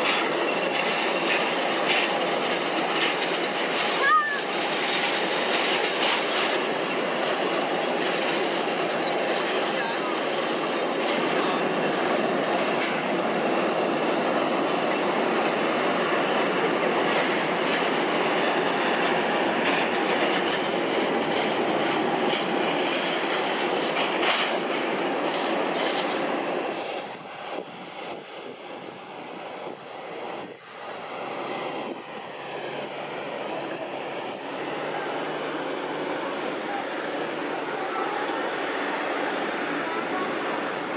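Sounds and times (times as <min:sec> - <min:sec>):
jet engines rushing: 0:00.0 - 0:40.9.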